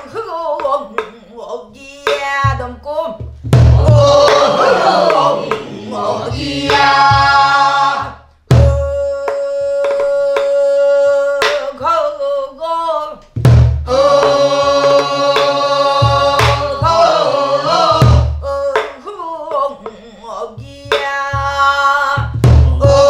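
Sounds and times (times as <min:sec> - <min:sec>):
woman singing folk song: 0:00.0 - 0:03.2, 0:08.6 - 0:13.3, 0:18.4 - 0:23.0
barrel drum struck with stick: 0:03.2 - 0:08.8, 0:13.4 - 0:18.9.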